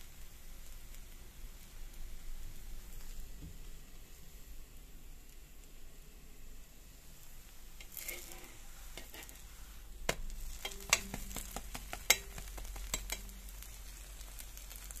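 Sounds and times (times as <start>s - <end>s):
pancake sizzling in a pan: 0.0s - 15.0s
metal spatula scraping a pan: 7.8s - 15.0s.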